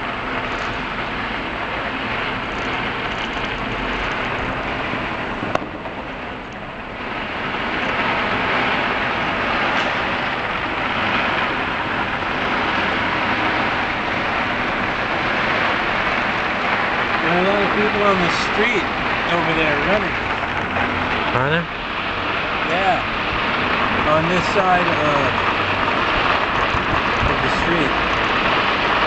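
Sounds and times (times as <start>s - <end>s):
city traffic: 0.0s - 29.0s
sharp crack: 1.6s - 6.7s.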